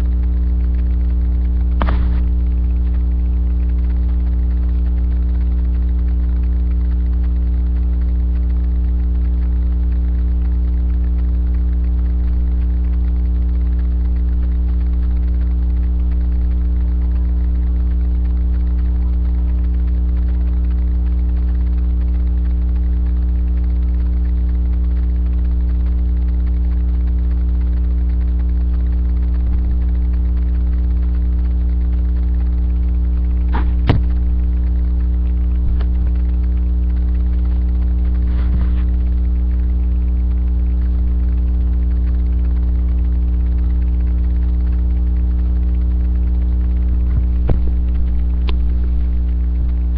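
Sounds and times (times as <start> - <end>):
electrical mains hum: 0.0 - 49.9
sharp knock: 1.8 - 2.3, 33.6 - 34.2.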